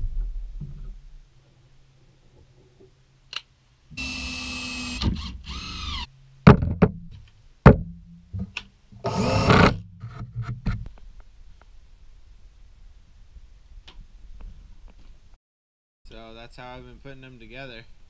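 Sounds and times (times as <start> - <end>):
cordless drill driving screws: 4.0 - 6.1, 9.0 - 9.8
sharp wooden knocks: 6.5 - 7.0.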